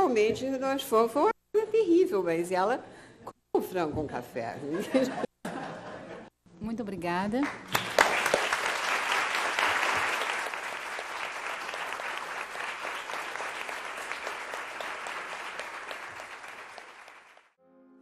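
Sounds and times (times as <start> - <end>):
audience applauding: 7.4 - 17.6.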